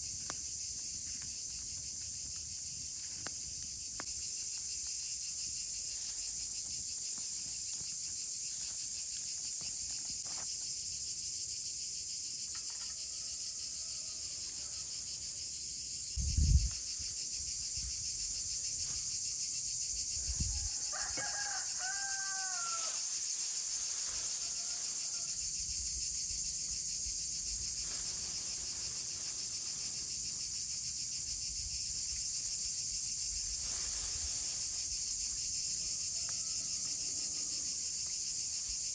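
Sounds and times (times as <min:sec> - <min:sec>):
crickets chirping: 0:00.0 - 0:38.9
rooster crowing: 0:12.8 - 0:15.0, 0:20.2 - 0:23.2, 0:24.0 - 0:25.5, 0:35.7 - 0:37.9.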